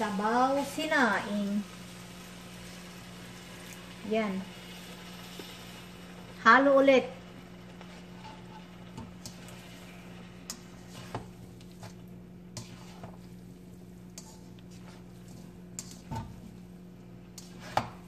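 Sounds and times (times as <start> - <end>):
utensils scraping a wok: 7.5 - 18.0.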